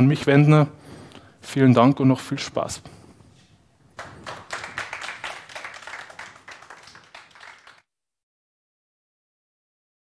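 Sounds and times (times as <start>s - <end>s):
audience applauding: 4.0s - 7.8s.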